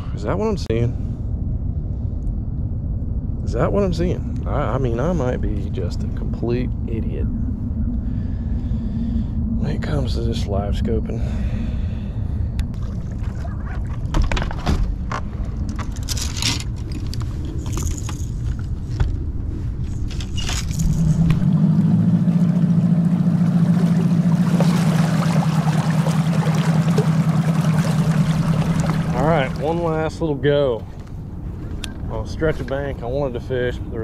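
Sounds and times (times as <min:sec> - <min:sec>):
outboard motor humming: 0:04.8 - 0:15.7, 0:20.1 - 0:34.0
water rushing past hull: 0:12.6 - 0:14.6, 0:20.6 - 0:33.3
gear knocks and clicks: 0:13.9 - 0:21.4.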